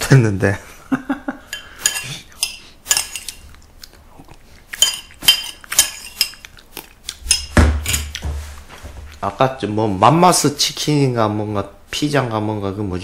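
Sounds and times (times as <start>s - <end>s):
metal spoon clinking ceramic bowl: 1.5s - 3.4s, 4.8s - 6.4s.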